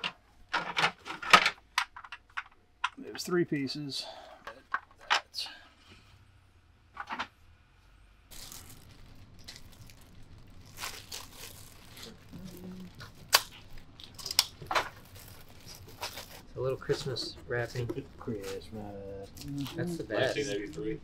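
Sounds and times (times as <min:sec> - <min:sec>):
paper crackling and tearing: 0:08.3 - 0:17.0
wrapping paper rustling: 0:08.3 - 0:19.9.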